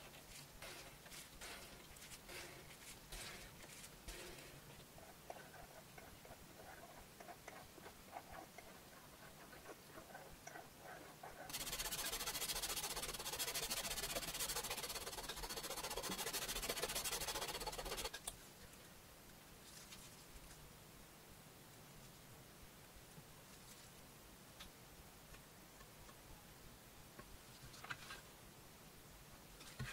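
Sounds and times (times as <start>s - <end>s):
sanding block on leather: 11.5s - 18.1s.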